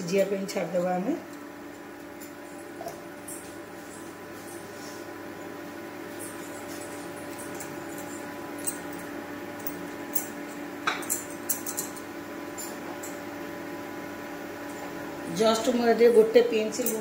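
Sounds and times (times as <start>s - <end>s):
induction cooktop hum: 0.0s - 17.0s
bangles and vegetables clinking: 6.1s - 13.3s, 16.6s - 17.0s.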